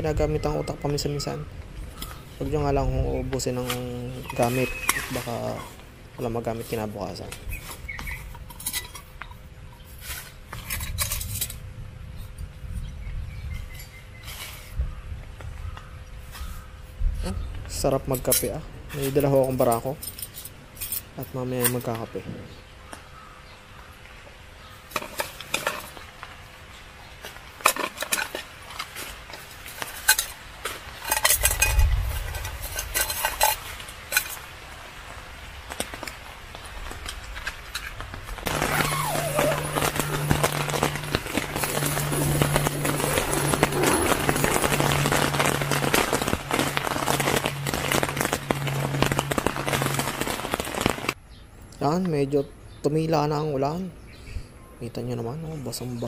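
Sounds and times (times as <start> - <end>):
rain pattering on tent fabric: 0.0 - 12.7, 22.7 - 51.2
cook pots clinking and scraping: 8.4 - 11.5, 27.2 - 34.5
low hum: 37.7 - 51.2.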